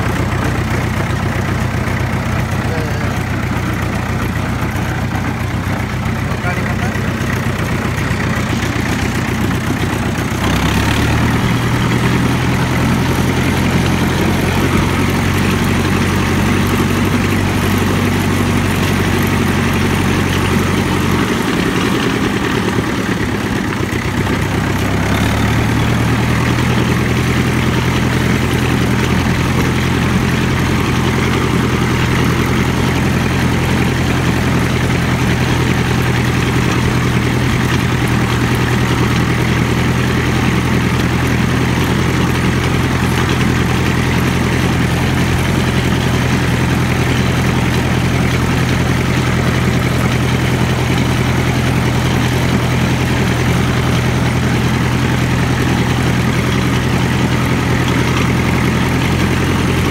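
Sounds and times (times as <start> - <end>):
tractor engine running: 0.0 - 59.9.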